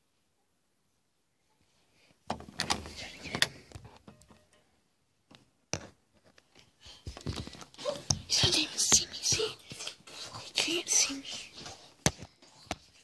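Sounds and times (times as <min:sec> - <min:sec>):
camera rustling and knocking: 0:05.3 - 0:09.9.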